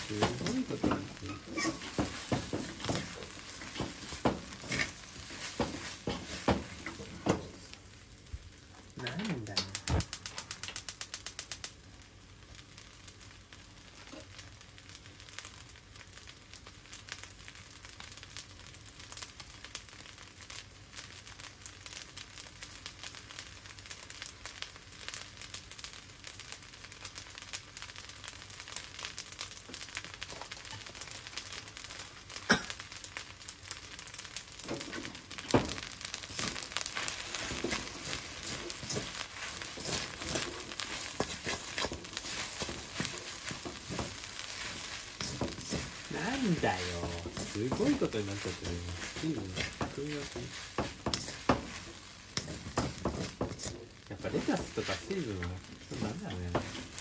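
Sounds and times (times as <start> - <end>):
wooden spatula scraping wok: 0.0 - 8.0, 34.6 - 57.0
rice sizzling in a wok: 0.0 - 57.0.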